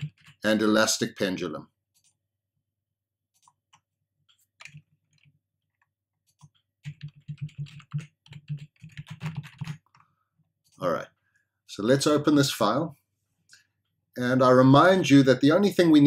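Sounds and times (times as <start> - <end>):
computer keyboard typing: 0.0 - 0.6, 3.4 - 10.1.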